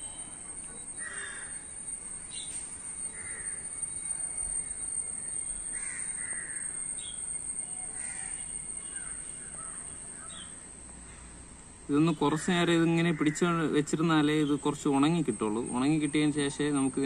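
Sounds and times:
high thin whine: 0:00.0 - 0:17.0
crows cawing: 0:01.0 - 0:01.6, 0:03.1 - 0:03.6, 0:05.7 - 0:06.8, 0:07.8 - 0:10.6, 0:12.4 - 0:13.8.

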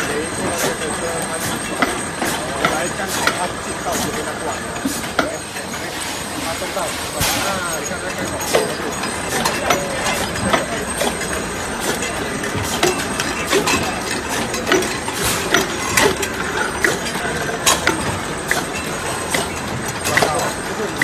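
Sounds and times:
filling machine running: 0:00.0 - 0:21.0.

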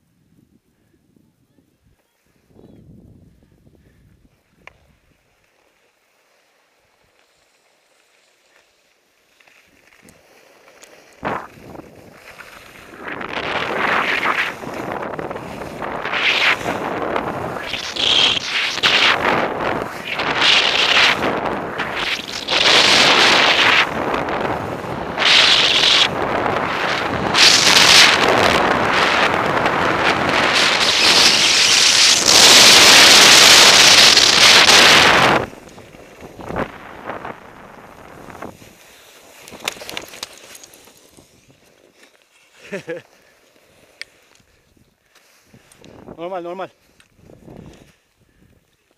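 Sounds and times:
wind buffeting microphone: 0:00.3 - 0:05.0, 0:11.2 - 0:38.8
skis scraping over snow: 0:04.3 - 0:48.1.

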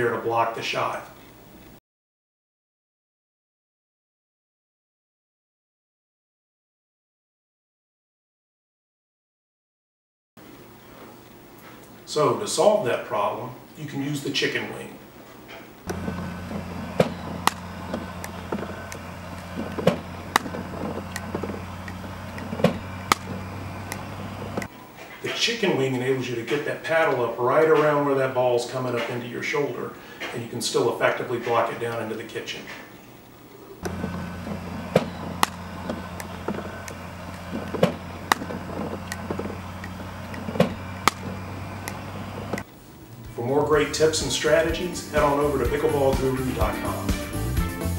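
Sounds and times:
steady low hum: 0:10.4 - 0:47.9
paddle striking plastic ball: 0:17.0 - 0:21.5, 0:22.4 - 0:24.0
paddles striking plastic ball: 0:22.4 - 0:24.0.

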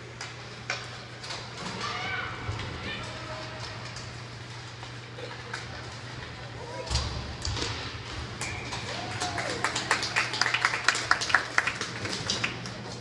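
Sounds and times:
crowd clapping: 0:08.9 - 0:13.0.

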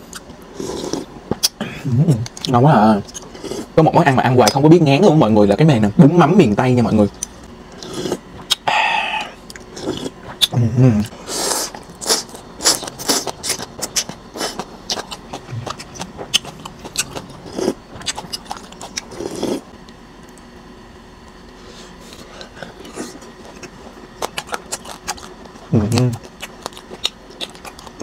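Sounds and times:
wet chewing and mouth smacks: 0:11.7 - 0:19.5, 0:22.8 - 0:28.0
noodle slurping: 0:17.0 - 0:19.6.

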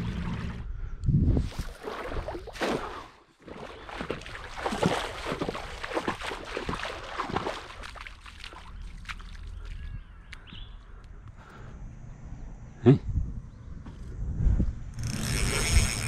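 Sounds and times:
shallow water splashing: 0:01.5 - 0:09.9.

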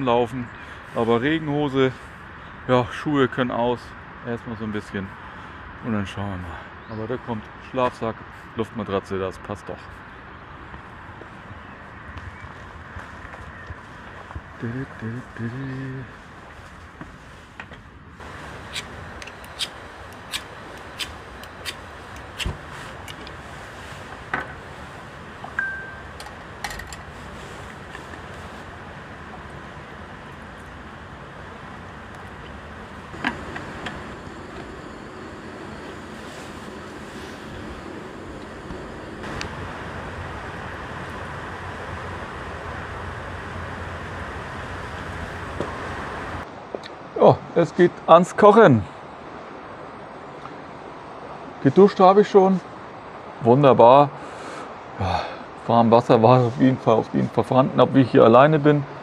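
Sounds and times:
steady hiss: 0:18.2 - 0:46.5.

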